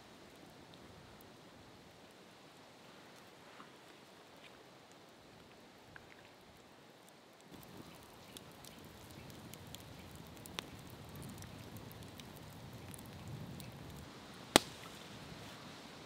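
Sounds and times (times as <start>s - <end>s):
campfire crackling and popping: 4.9s - 15.5s.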